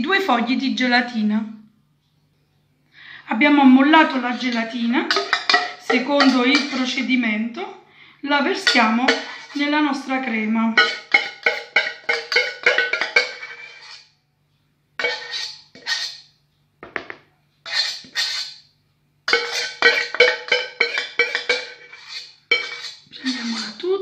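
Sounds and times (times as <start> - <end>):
metal spoon striking saucepan: 4.3 - 7.1, 8.5 - 9.6, 10.7 - 14.0, 19.3 - 23.8.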